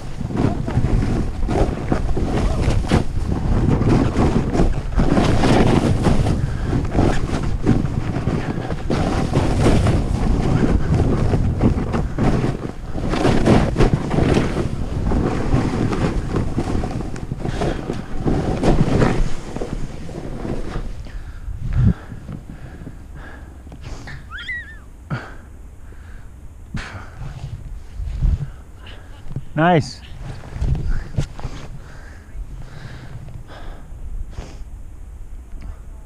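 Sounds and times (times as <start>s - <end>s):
ski edges scraping snow: 0.0s - 22.8s, 30.0s - 32.0s
wind rushing over microphone: 0.0s - 25.3s, 26.8s - 35.9s.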